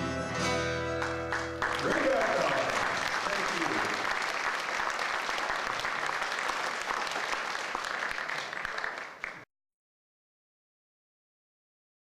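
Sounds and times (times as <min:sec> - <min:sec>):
audience applauding: 0:00.9 - 0:09.5.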